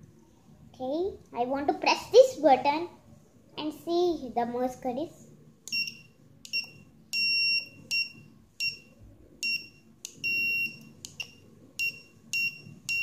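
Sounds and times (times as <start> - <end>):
buzzer beeping morse code: 5.7 - 8.8, 9.4 - 13.0.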